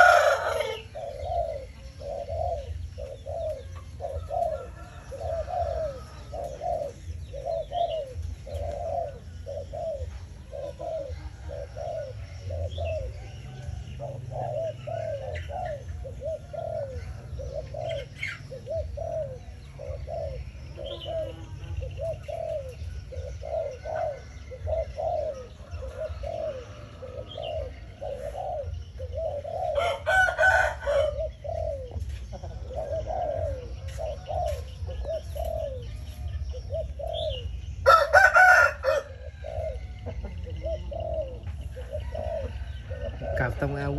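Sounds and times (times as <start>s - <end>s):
dove cooing: 0.0s - 43.9s.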